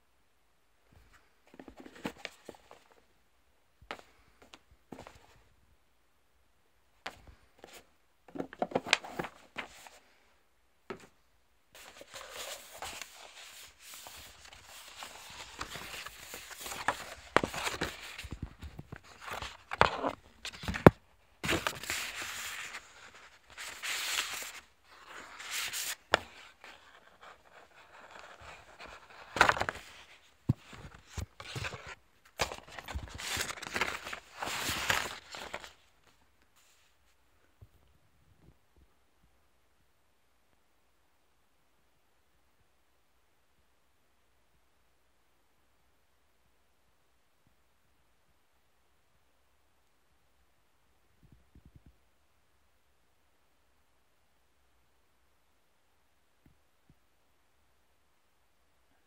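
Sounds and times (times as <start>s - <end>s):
cardboard and paper rustling: 1.1s - 3.0s, 7.1s - 10.0s, 11.8s - 37.0s.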